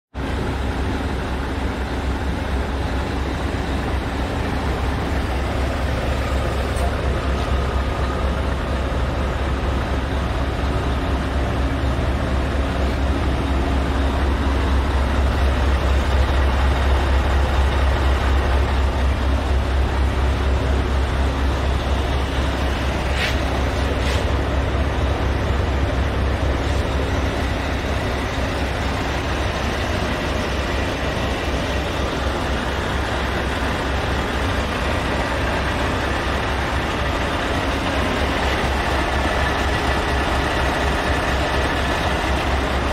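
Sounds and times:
diesel engine idling: 0.2 - 42.9.

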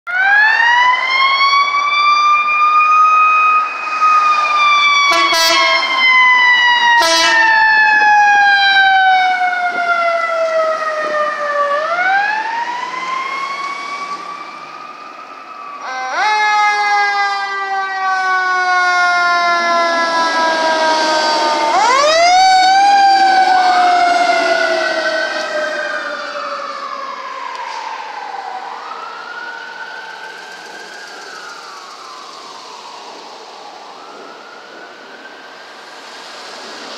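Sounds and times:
ambulance siren wailing: 0.1 - 36.9
fire engine siren: 0.1 - 36.9
vehicle horn blasts: 5.1 - 5.9, 7.0 - 7.4.

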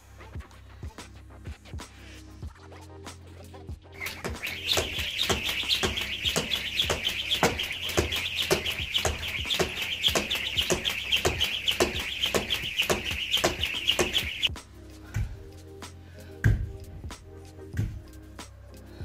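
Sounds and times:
high pulsing rattle: 4.0 - 14.5
jump rope slapping tiled floor: 4.0 - 14.5.

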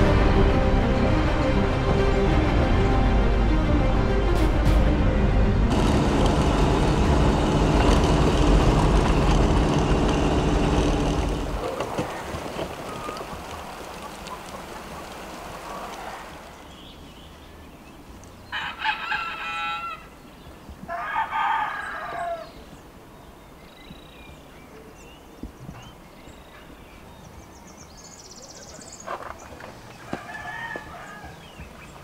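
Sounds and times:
steady rushing noise: 0.0 - 16.6
rooster crowing: 18.5 - 20.1, 20.9 - 22.6, 30.1 - 31.5.

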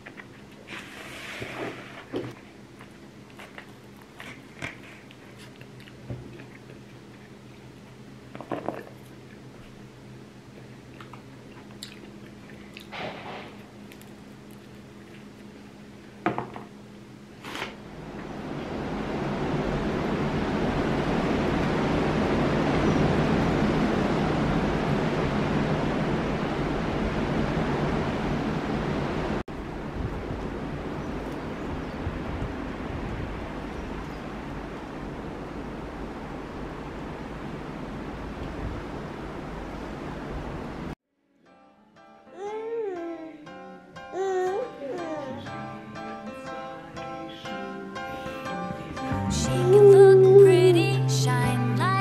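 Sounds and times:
person chewing pizza: 2.8 - 9.5, 10.6 - 12.9, 13.6 - 15.6
strong wind buffeting microphone: 18.8 - 40.9
low hum: 45.7 - 52.0.

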